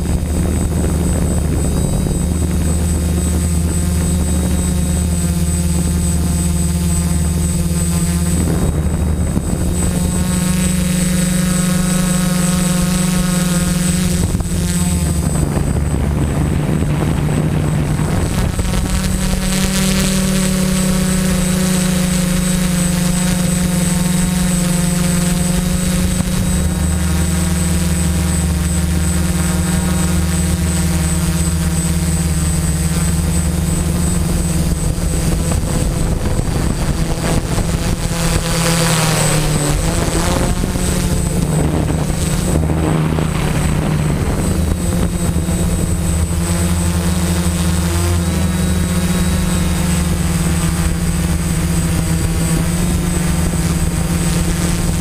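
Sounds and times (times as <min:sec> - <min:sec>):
drone motors buzzing: 0:00.0 - 0:55.0.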